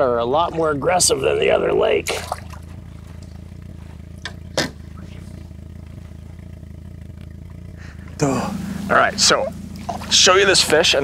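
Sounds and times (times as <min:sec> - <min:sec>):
boat motor idling: 0:00.0 - 0:11.0
fish splashing in water: 0:02.0 - 0:02.7.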